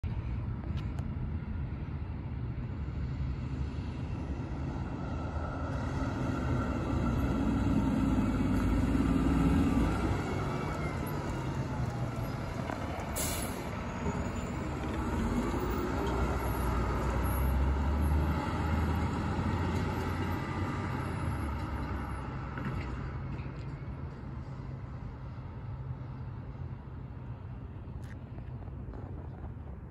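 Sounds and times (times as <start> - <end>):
fire engine driving past: 1.4 - 27.9
sharp hiss: 13.2 - 13.7.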